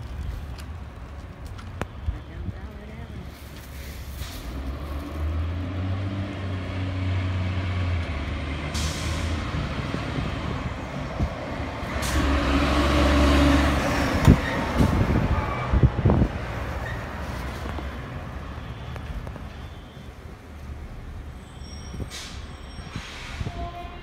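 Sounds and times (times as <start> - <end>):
fire engine diesel engine passing: 2.6 - 24.0
air brake hisses: 8.7 - 9.4, 21.8 - 23.6.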